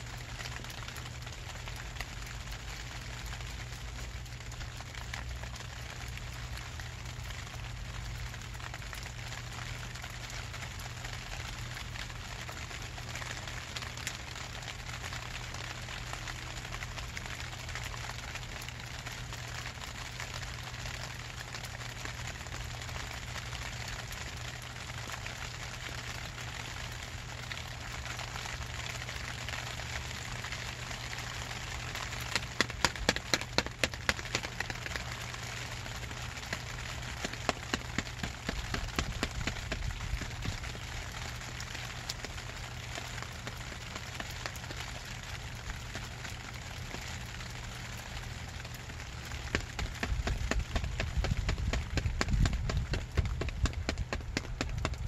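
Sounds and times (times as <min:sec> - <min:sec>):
rain on plastic tarp: 0:00.0 - 0:55.0
sharp taps: 0:32.3 - 0:34.8, 0:37.2 - 0:40.6, 0:49.5 - 0:55.0.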